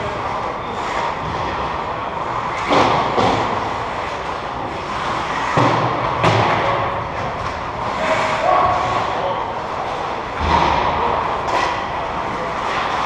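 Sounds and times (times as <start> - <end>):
hockey sticks knocking puck: 2.4 - 9.0.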